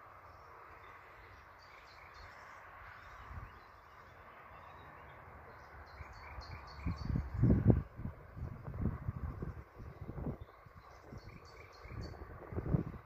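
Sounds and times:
songbird chirping: 0:00.0 - 0:07.7, 0:09.8 - 0:12.2.

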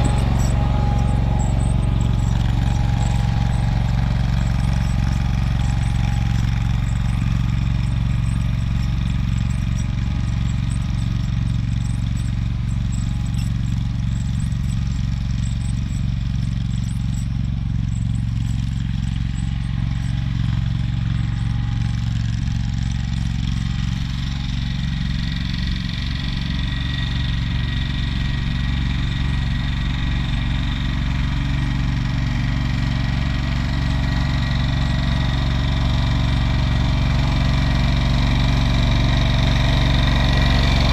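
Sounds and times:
garden tractor engine running: 0:00.0 - 0:40.9.

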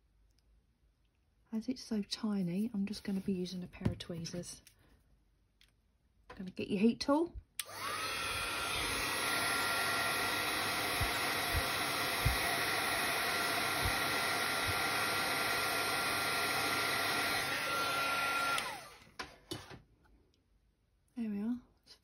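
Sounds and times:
heat tool blowing with fan whine: 0:07.6 - 0:19.0.

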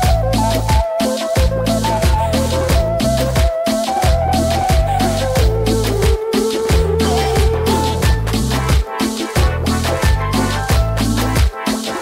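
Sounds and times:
held melody note: 0:00.0 - 0:09.6
electronic drum beat: 0:00.0 - 0:12.0
bass line: 0:01.4 - 0:08.8, 0:09.4 - 0:11.4.

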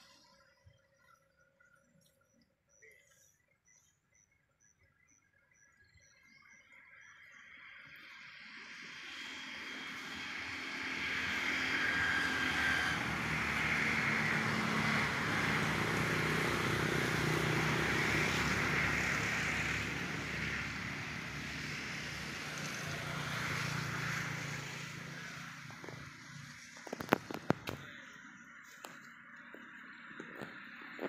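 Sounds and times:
engine passing by: 0:07.6 - 0:31.0.

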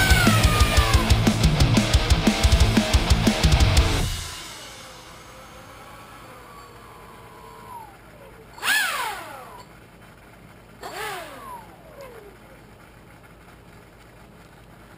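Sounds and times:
airboat motor and propeller whining: 0:00.0 - 0:14.9.

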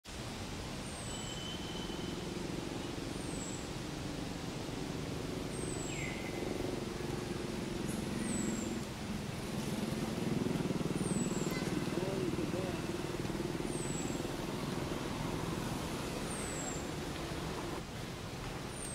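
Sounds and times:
lower bird whistles: 0:00.9 - 0:02.2
steady low hum: 0:02.2 - 0:17.8.

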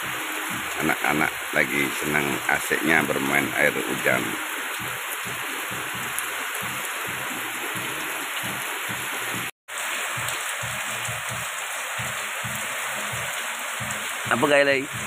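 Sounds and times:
heavy rain on concrete and roofs: 0:00.0 - 0:15.0.

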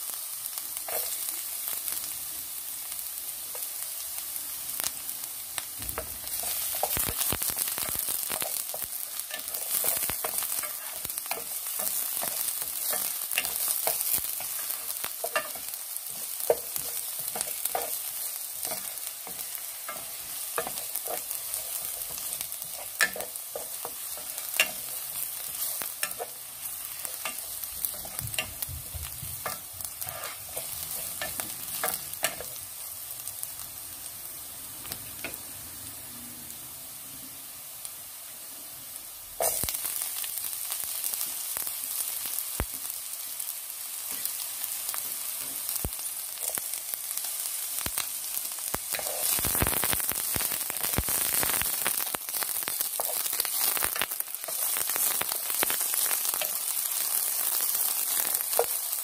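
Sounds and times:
garlic sizzling in hot oil: 0:00.0 - 0:59.0.

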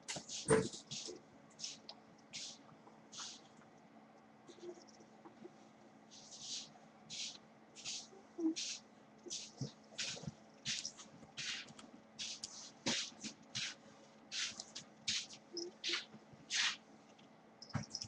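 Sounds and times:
pencil scratching on paper: 0:06.2 - 0:16.8.

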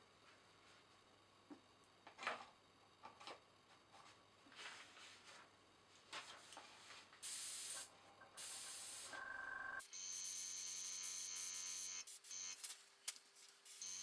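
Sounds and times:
airbrush spraying hisses: 0:07.2 - 0:09.1.

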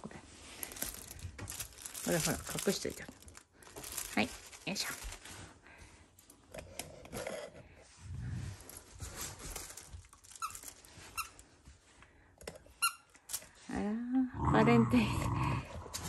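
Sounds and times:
dog low growl: 0:14.3 - 0:16.0.

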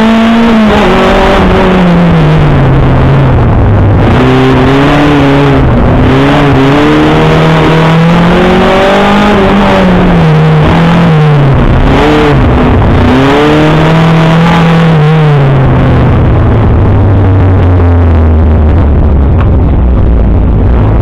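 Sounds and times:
rally car engine revving: 0:00.0 - 0:21.0.

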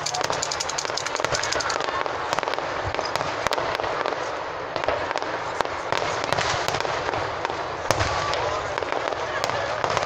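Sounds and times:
fireworks pops and crackles: 0:00.0 - 0:10.0
loud firework bang: 0:05.9 - 0:10.0.

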